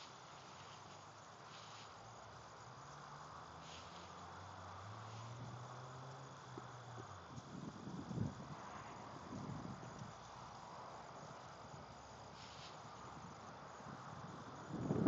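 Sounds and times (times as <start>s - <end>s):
insects chirring: 0.0s - 15.0s
wind rumbling on microphone: 4.4s - 15.0s.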